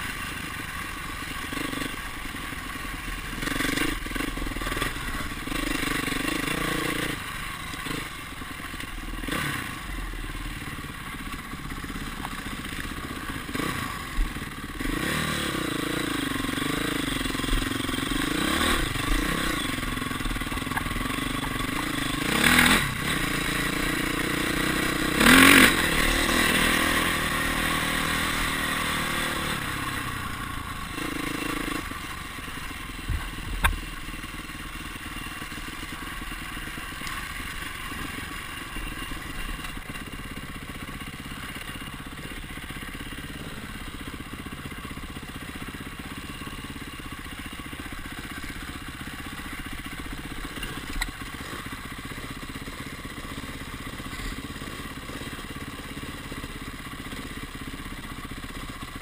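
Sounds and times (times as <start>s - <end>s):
dirt bike engine revving: 0.0s - 44.3s.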